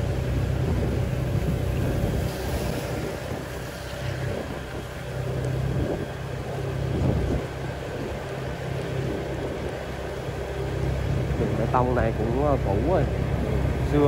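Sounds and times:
road and wind noise: 0.0s - 14.0s
vehicle engine rumbling: 0.0s - 14.0s.

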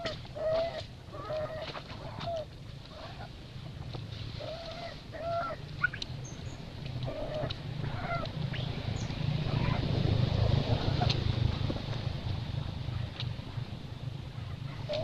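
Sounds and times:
animal calls: 0.0s - 3.3s, 4.4s - 6.0s
steady low rumble: 0.0s - 15.0s.

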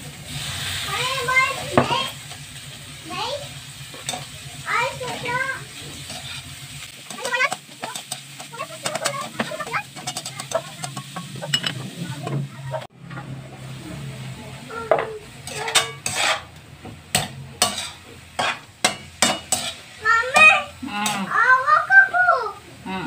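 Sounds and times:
frying sizzle: 0.0s - 23.0s
metal spatula scraping a wok: 3.7s - 13.4s, 15.3s - 21.3s.

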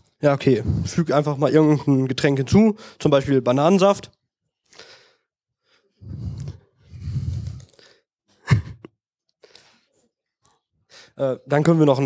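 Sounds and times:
person breathing and sighing: 0.6s - 1.0s, 4.7s - 10.0s.

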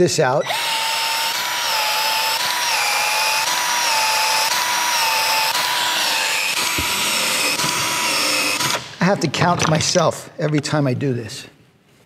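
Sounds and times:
expansion tool motor whine: 0.4s - 9.0s.

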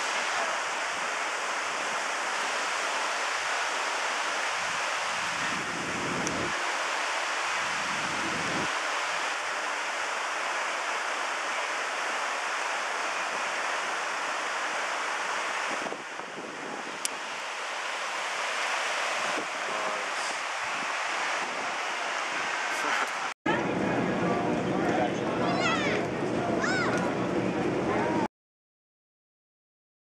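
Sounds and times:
river rapids over rocks: 0.0s - 23.3s.

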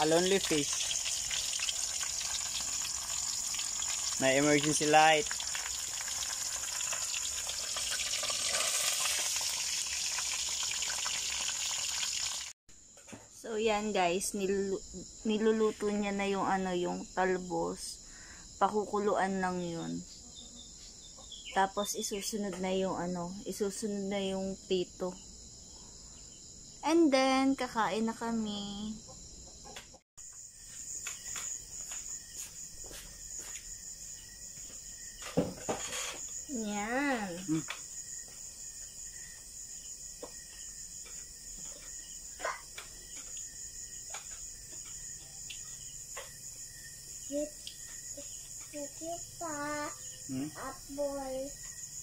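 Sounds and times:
fish sizzling in hot oil: 0.0s - 12.6s
crickets chirping: 0.0s - 52.0s
oil spattering ticks: 5.2s - 12.0s.

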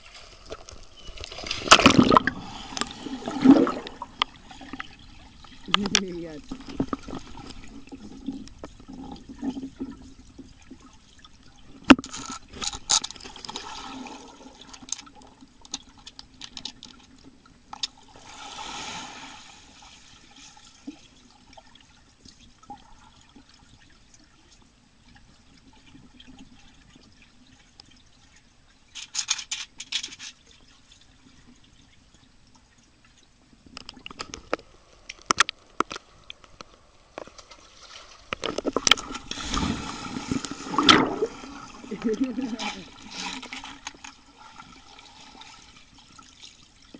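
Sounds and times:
muffled underwater bubbling and splashing: 0.0s - 12.6s
low steady hum: 0.0s - 46.9s.

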